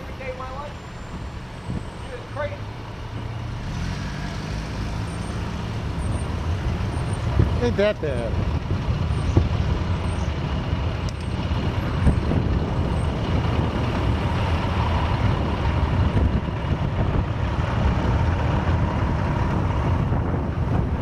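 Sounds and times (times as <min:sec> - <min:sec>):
street traffic: 0:00.0 - 0:21.0
wind buffeting microphone: 0:04.4 - 0:21.0.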